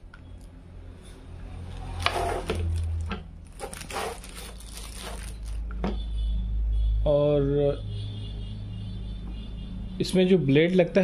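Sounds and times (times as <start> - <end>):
hand planer handling scrapes: 1.9 - 2.9, 3.6 - 5.4.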